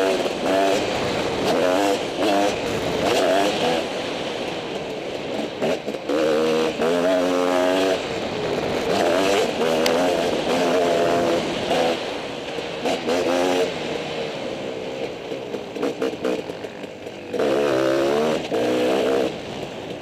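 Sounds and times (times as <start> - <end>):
dirt bike engine revving: 0.0 - 20.0.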